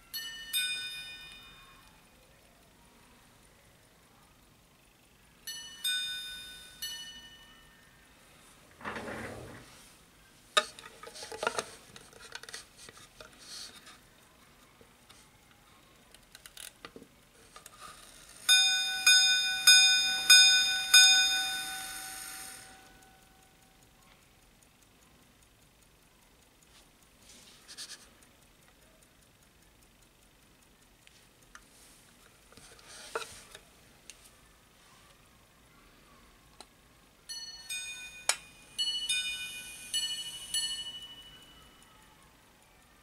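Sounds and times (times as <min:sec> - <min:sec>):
rustling and clicks of handling: 0:08.6 - 0:18.5, 0:31.0 - 0:35.2
pocket watch striking gongs: 0:18.5 - 0:23.5, 0:37.3 - 0:41.9.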